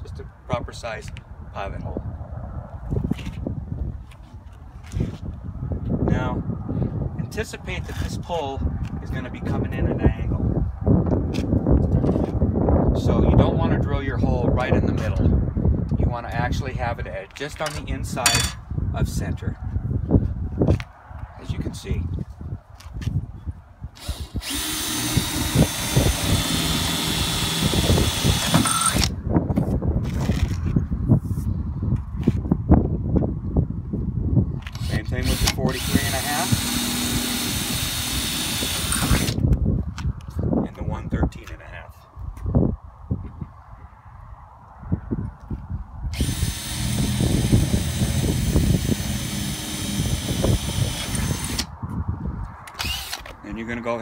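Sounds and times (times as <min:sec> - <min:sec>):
cordless drill drilling wood: 0:24.0 - 0:29.1, 0:34.7 - 0:39.4, 0:46.2 - 0:51.7, 0:52.7 - 0:53.4.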